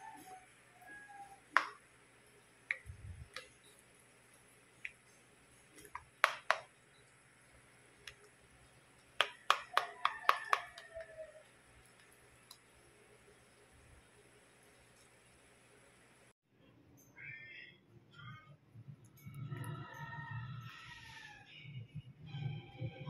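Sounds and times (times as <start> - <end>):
plastic spoon tapping glass dish: 5.8 - 6.7, 9.2 - 11.1.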